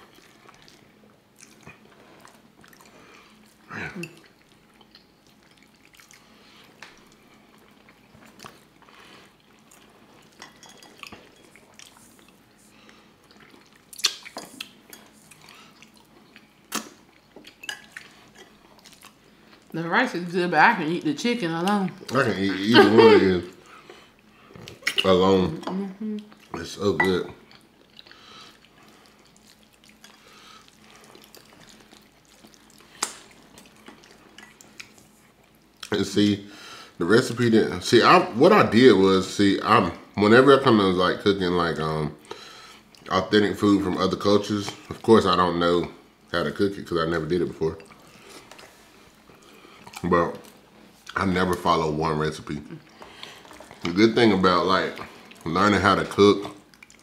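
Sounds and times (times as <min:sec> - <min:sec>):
wet chewing mouth noises: 0:00.0 - 0:09.9, 0:11.0 - 0:19.7, 0:56.5 - 0:57.0
people chewing: 0:00.0 - 0:19.8, 0:21.6 - 0:37.0, 0:46.6 - 0:57.0.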